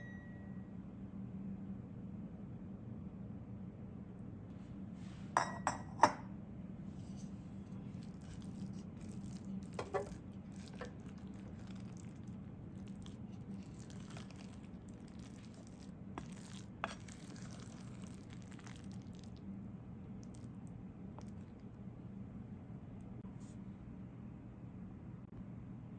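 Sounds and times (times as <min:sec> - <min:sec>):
spatula stirring sticky rice: 0:07.0 - 0:19.4.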